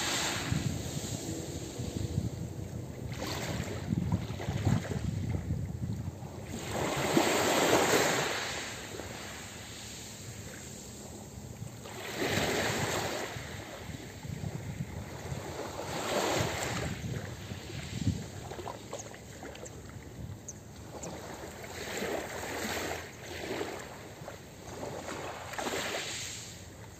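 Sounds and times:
waves washing onto pebble beach: 0.0 - 2.1.

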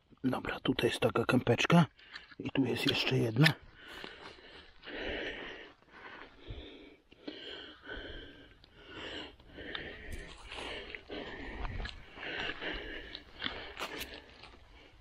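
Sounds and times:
man breathing: 3.6 - 15.0.

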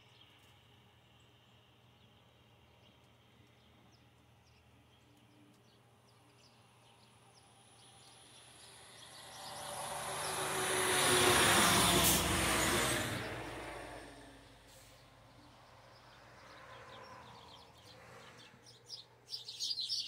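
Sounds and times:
vehicle passing by: 7.8 - 18.7.

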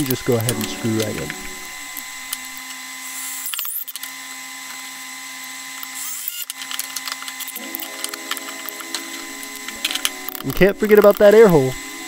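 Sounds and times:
power drill driving screw: 0.0 - 12.0.

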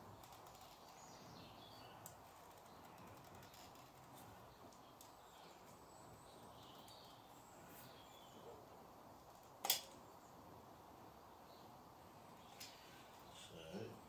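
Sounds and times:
faint bird chirps: 0.1 - 8.8.

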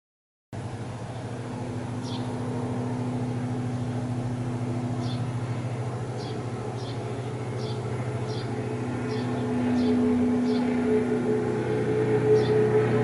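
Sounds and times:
airplane engine drone: 0.6 - 13.0
small bird chirping: 2.0 - 2.4, 5.0 - 5.3, 6.2 - 8.5, 9.1 - 10.7.

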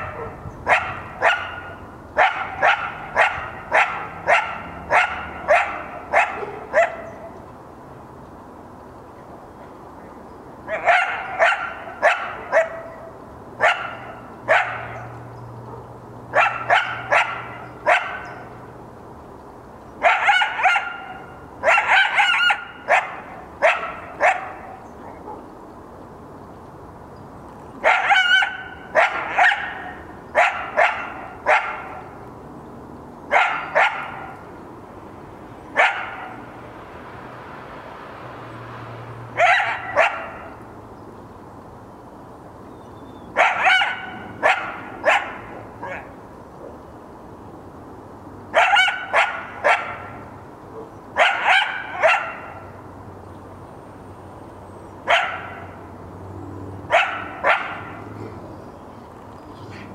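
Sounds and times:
coyote barking: 0.0 - 7.4, 10.7 - 15.1, 16.3 - 18.4, 20.0 - 25.5, 27.8 - 32.1, 33.3 - 34.5, 39.4 - 40.6, 43.3 - 46.2, 48.5 - 50.2, 50.8 - 52.7, 55.0 - 55.8, 56.9 - 58.4.

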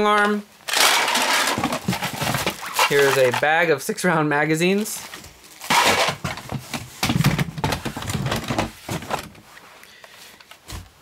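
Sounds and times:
plastic toys clattering in a box: 0.2 - 3.5, 5.7 - 9.3.

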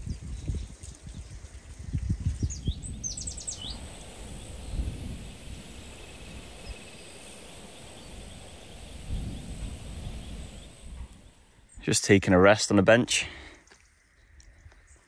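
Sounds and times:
small bird chirping: 2.1 - 11.9
low background rumble: 2.4 - 11.9
faint high insect-like trill: 2.5 - 11.5.

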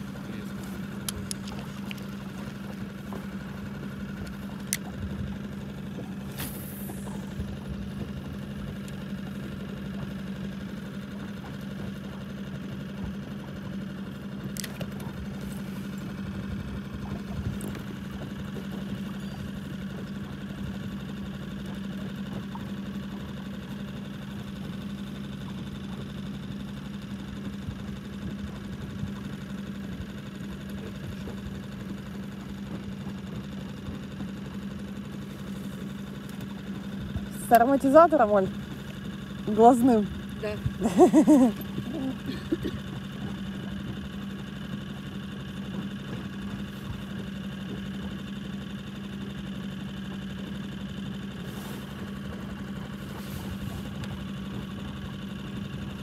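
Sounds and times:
outboard motor humming: 0.0 - 56.0
faint clicks: 4.2 - 4.9.

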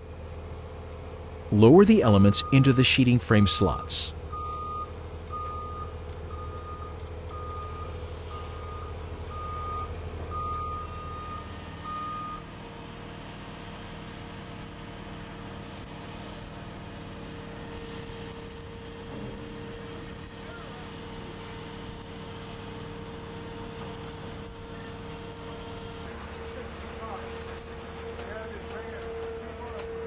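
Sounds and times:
backup alarm beeping: 1.6 - 12.4
low engine rumble: 15.8 - 30.0.

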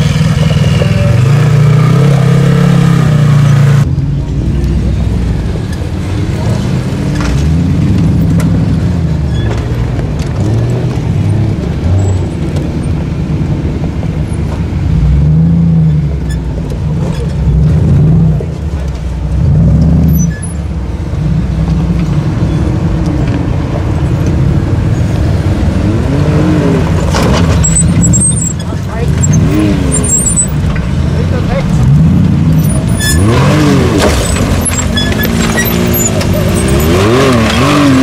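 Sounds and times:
buggy engine revving in bursts: 0.0 - 3.9, 24.4 - 38.0.

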